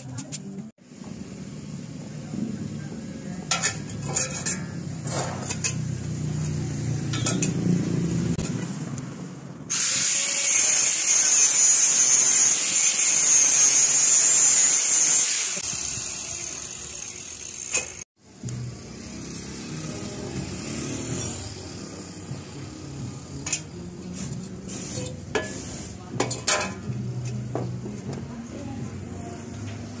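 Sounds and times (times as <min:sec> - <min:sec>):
angle grinder grinding steel: 0:09.7 - 0:18.1, 0:19.1 - 0:22.3.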